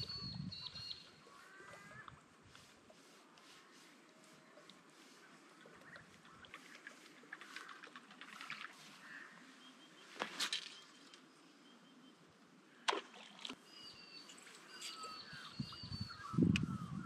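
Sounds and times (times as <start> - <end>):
birds chirping: 0.0 - 2.2, 3.6 - 12.3, 13.6 - 17.0.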